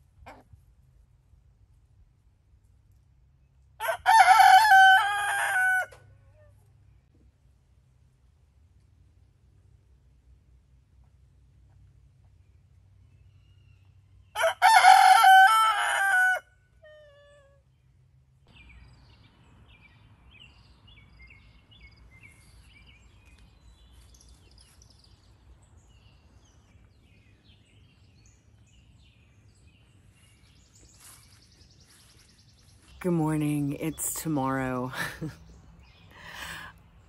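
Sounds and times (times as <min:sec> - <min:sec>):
rooster crowing: 0:03.8 - 0:06.0, 0:14.4 - 0:16.5
faint birds chirping: 0:17.3 - 0:37.0.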